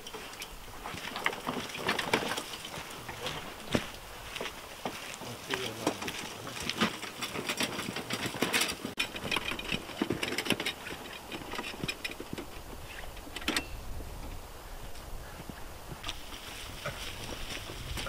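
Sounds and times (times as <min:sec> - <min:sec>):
metal hand cart rattling: 0:00.0 - 0:03.6, 0:05.3 - 0:13.8.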